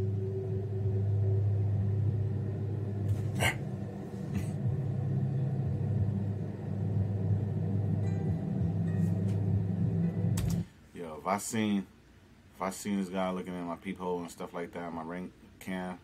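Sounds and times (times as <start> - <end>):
low droning music: 0.0 - 10.7.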